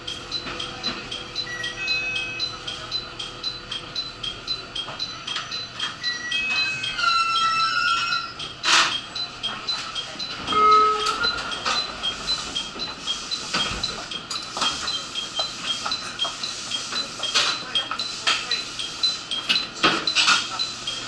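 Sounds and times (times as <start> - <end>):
two-tone electronic chime: 0.3 - 9.6, 10.2 - 13.0.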